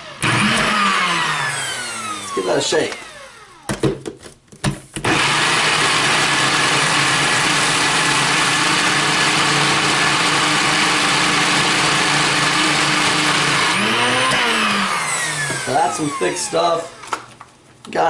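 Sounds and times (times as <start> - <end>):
blender motor running: 0.0 - 3.7, 5.0 - 17.2.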